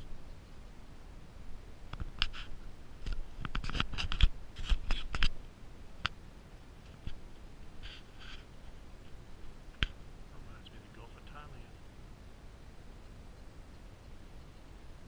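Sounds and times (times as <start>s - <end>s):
camera handling noise: 1.9s - 5.4s.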